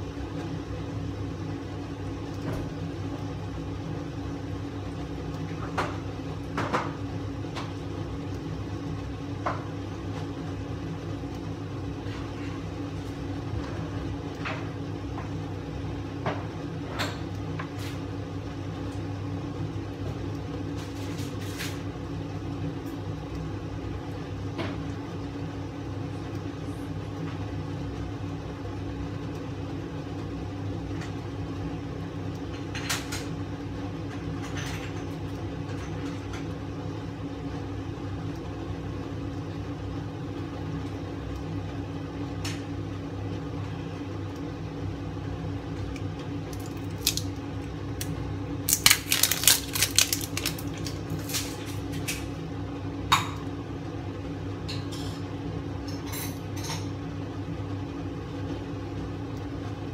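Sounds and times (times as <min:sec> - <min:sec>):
kitchen appliance humming: 0:00.0 - 0:59.9
food popping and crackling: 0:45.8 - 0:52.4.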